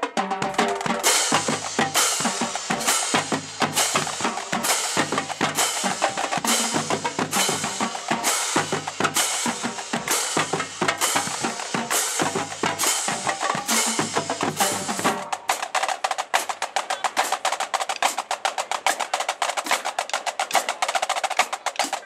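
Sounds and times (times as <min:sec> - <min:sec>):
tenor and bass drums: 0:00.0 - 0:17.7
marching snare drums rolling: 0:00.0 - 0:22.0
cymbals crashing: 0:00.7 - 0:15.3.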